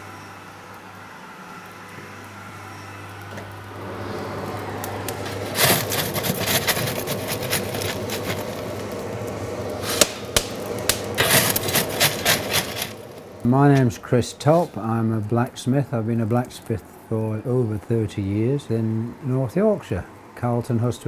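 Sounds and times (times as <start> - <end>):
iron tool scraping coals: 3.8 - 15.0.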